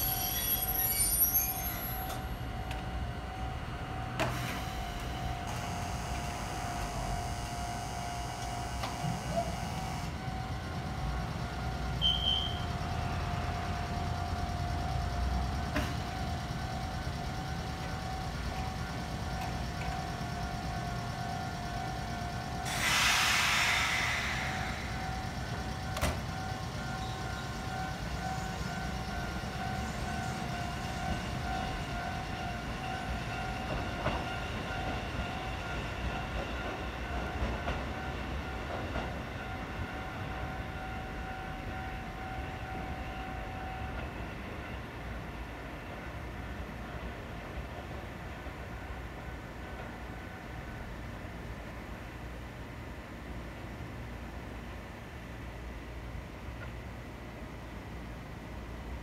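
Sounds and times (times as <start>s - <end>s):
electric train whine: 0.0s - 59.0s
loud air hiss: 22.6s - 25.0s.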